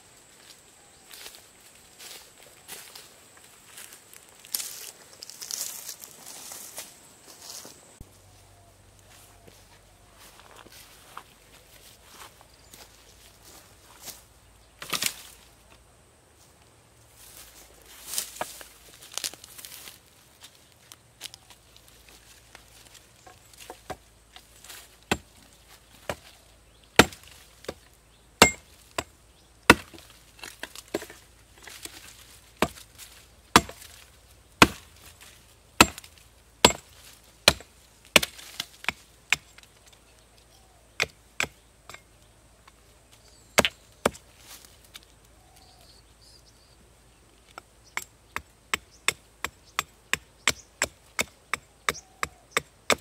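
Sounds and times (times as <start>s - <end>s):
hatchet chopping wood: 25.0s - 25.3s, 27.0s - 27.8s, 28.4s - 29.1s, 29.7s - 32.9s, 33.5s - 34.0s, 34.6s - 35.0s, 35.8s - 39.6s, 41.0s - 42.0s, 43.6s - 44.2s, 47.5s - 53.0s.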